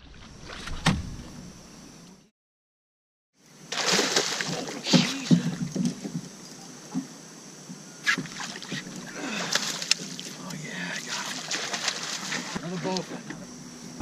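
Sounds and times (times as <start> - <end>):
fish splashing at surface: 3.7 - 5.6, 11.1 - 12.6.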